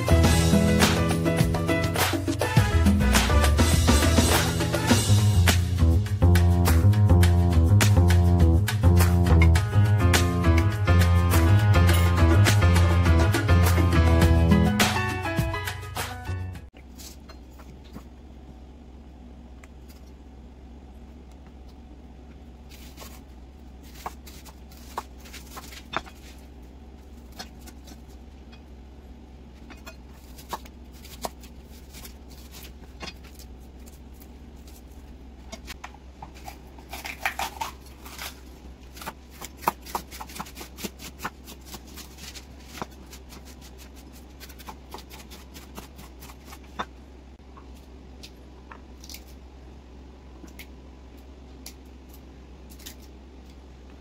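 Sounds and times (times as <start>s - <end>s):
steady low hum: 16.6s - 54.0s.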